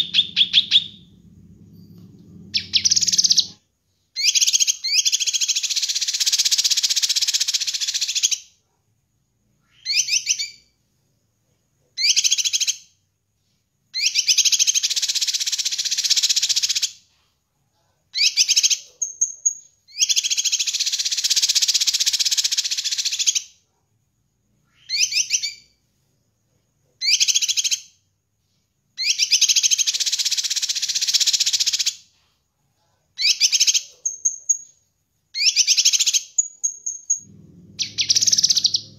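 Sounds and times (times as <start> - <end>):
bird twittering and chirping: 0.0 - 1.1, 2.5 - 3.6, 35.5 - 38.9
rising bird whistles: 2.5 - 3.6, 36.7 - 38.9.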